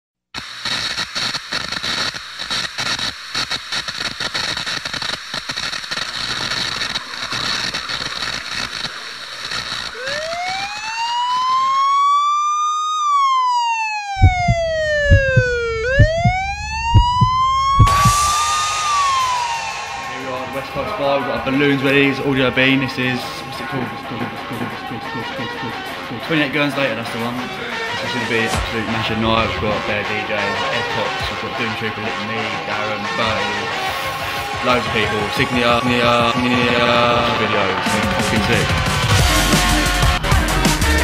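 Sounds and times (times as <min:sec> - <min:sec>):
crackling static hiss: 0:00.4 - 0:12.7
synthesized siren-like tone: 0:09.8 - 0:24.3
electronic dance beat kick drum: 0:14.2 - 0:21.2, 0:23.6 - 0:26.2, 0:34.2 - 0:40.8.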